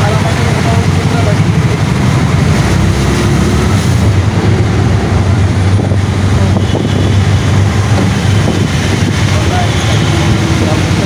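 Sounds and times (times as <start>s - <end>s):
wind rumble on microphone: 1.5s - 9.6s.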